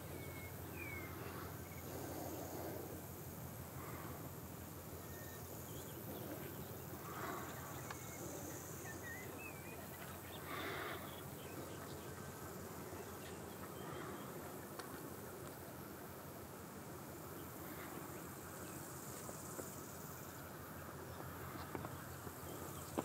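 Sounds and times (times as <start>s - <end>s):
even hiss: 0.0s - 23.0s
faint wavering chirps: 4.9s - 12.4s.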